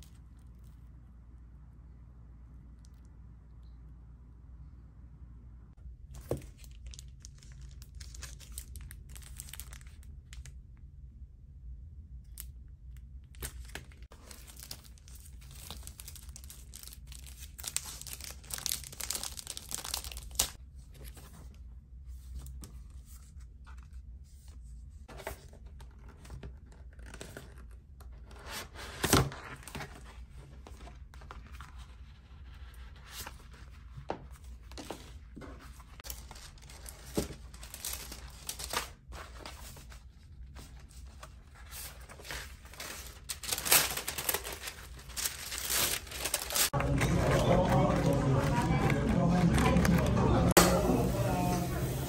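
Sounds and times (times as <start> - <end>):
plastic wrapping crinkling: 6.1 - 10.6, 13.3 - 20.6, 34.8 - 52.0.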